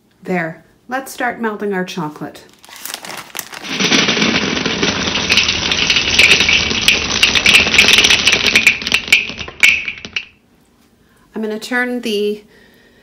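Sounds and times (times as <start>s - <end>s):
chocolate chips rattling into metal bowl: 2.6s - 10.4s.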